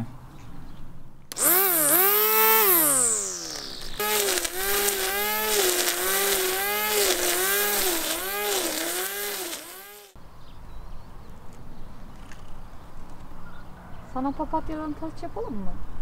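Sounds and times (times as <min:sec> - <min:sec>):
electric string trimmer running: 0:01.3 - 0:10.2.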